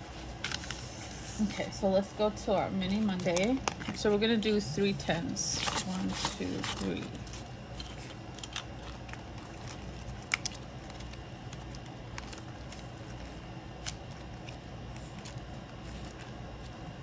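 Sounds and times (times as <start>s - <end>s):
steady low hum: 0.0s - 17.0s
paper clicks and rustles: 0.4s - 1.0s, 5.6s - 16.8s.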